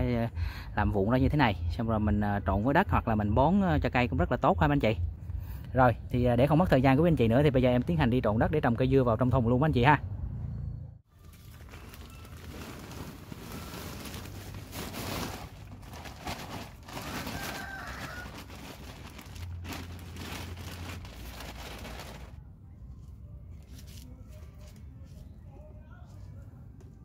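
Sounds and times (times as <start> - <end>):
soil scraping and rustling by hand: 11.6 - 22.3.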